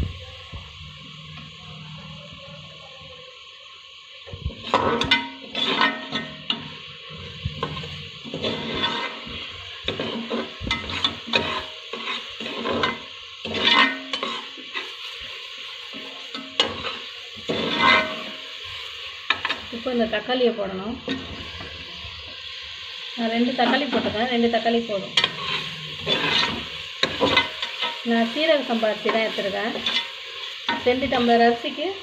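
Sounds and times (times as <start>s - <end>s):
paste sizzling in oil: 0.0s - 32.0s
metal ladle scraping a pot: 4.6s - 14.9s, 16.6s - 18.2s, 25.2s - 28.1s.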